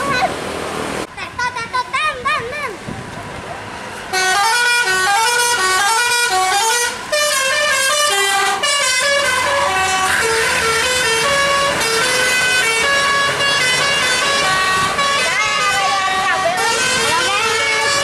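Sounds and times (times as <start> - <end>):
multi-tone bus horn melody: 4.1 - 18.0.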